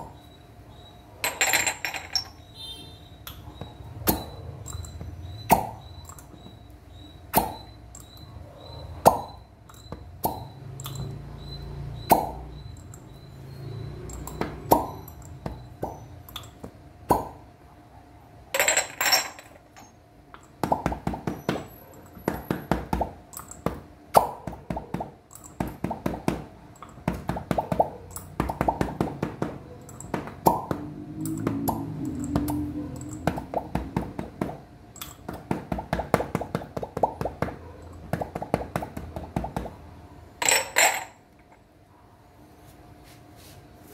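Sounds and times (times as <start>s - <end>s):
glass clinking: 1.2s - 2.5s, 18.6s - 20.0s, 40.4s - 41.2s
glass cups popping on skin: 9.0s - 11.1s, 14.1s - 17.4s, 18.6s - 39.8s.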